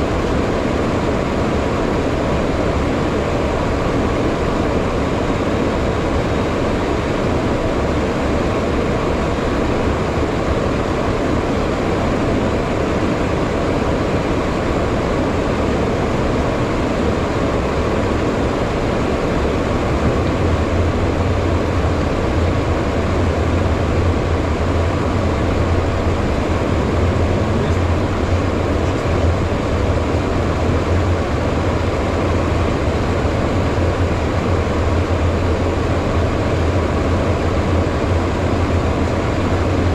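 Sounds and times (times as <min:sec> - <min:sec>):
air rushing over aircraft: 0:00.0 - 0:39.9
jet engines droning: 0:00.0 - 0:39.9
low hum: 0:18.1 - 0:35.8.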